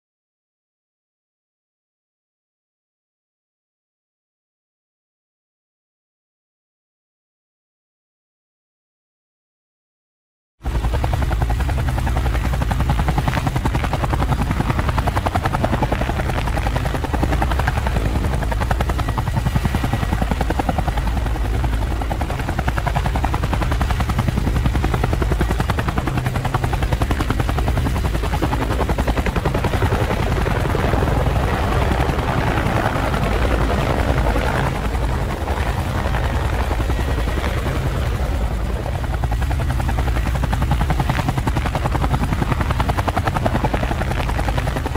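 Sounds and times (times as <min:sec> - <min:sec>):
drone propellers hovering: 0:10.6 - 0:44.9.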